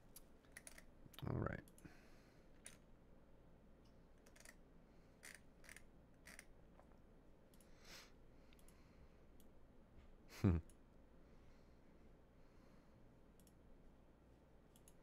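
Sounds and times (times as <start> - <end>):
faint scattered clicks: 14.7 - 15.0.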